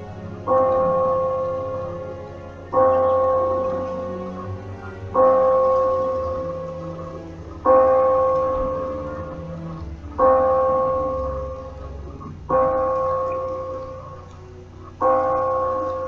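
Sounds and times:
tower bell tolling: 0.0 - 16.0.

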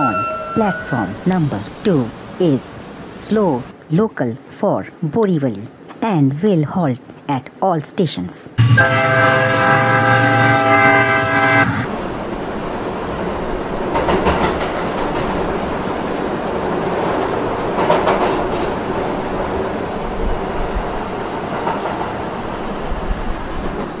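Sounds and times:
train wheels rumbling on rails: 8.6 - 24.0
clacks over rail joints: 13.9 - 15.5, 17.0 - 18.9, 21.4 - 22.2.

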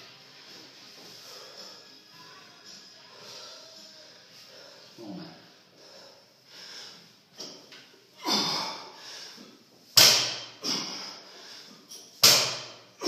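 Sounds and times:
hard breathing: 1.0 - 2.1, 3.1 - 7.5, 8.2 - 9.7, 10.5 - 11.9
barbell thudding onto rubber floor: 10.0 - 10.5, 12.2 - 12.8.

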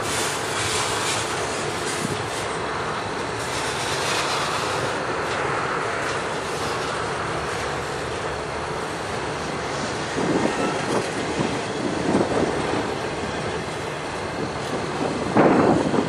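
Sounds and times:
train cars clanking: 0.0 - 16.0
train wheels rumbling on rails: 0.0 - 16.0.

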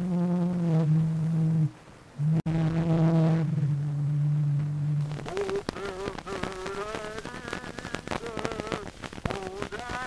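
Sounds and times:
low buzzing drone: 0.0 - 10.0
person singing on old recording: 3.5 - 10.0
record clicks and surface noise: 5.0 - 10.0.

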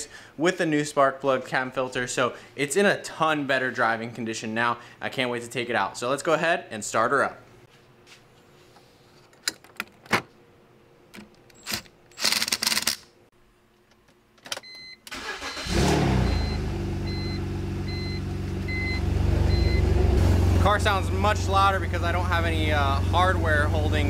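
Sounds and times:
car engine cranking and idling: 15.1 - 24.0
warning chime beeping: 16.2 - 20.0.

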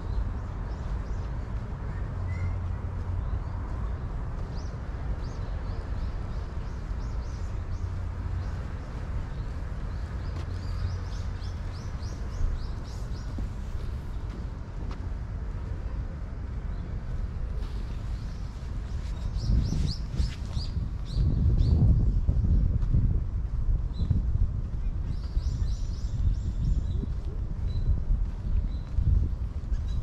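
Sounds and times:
small birds chirping: 0.0 - 14.3, 16.6 - 22.6, 24.8 - 30.0
low rumble of city traffic: 0.0 - 30.0.

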